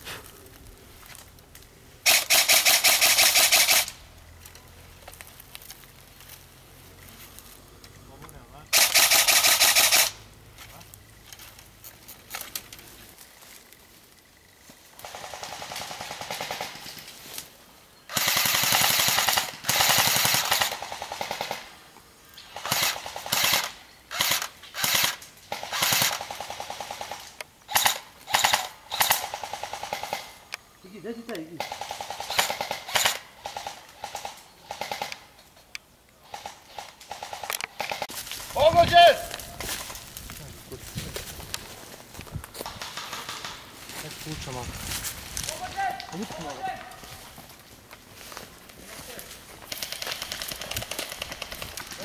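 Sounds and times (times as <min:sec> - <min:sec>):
automatic airsoft gunfire: 0:02.0 - 0:04.0, 0:08.7 - 0:10.2, 0:15.0 - 0:16.9, 0:18.1 - 0:21.7, 0:22.5 - 0:30.3, 0:31.6 - 0:35.2, 0:42.6 - 0:43.6, 0:49.7 - 0:51.8.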